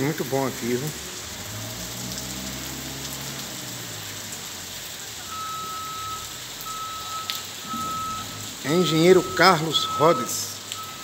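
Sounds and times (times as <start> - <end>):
rain falling on street: 0.0 - 11.0
vehicle reversing alarm beeps: 5.3 - 11.0.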